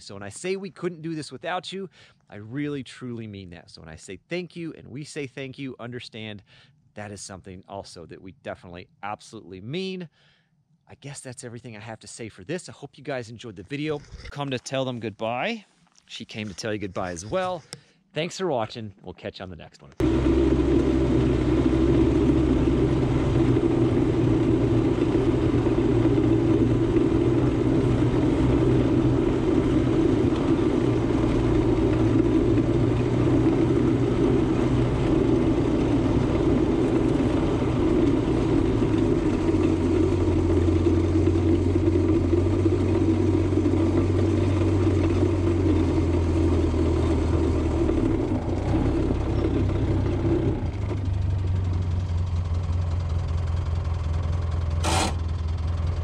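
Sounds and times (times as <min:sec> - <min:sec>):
vehicle engine running: 0:20.0 - 0:56.0.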